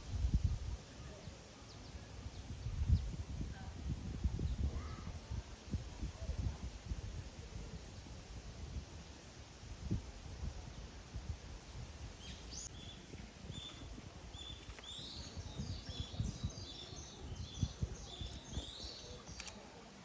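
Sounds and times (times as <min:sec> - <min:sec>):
small bird chirping: 0:12.2 - 0:19.6.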